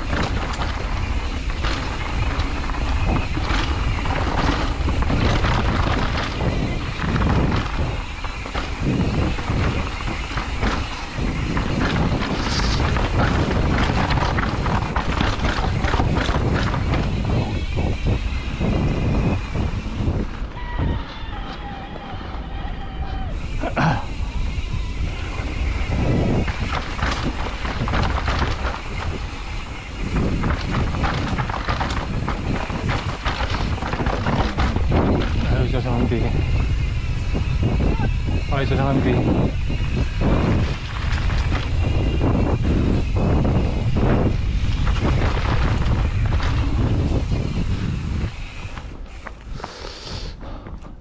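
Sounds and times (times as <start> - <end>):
wheels knocking over steps: 0.0 - 19.8, 25.5 - 36.7
bicycle frame rattling: 0.0 - 51.0
tyre noise on dirt: 0.0 - 51.0
wind buffeting microphone: 0.0 - 51.0.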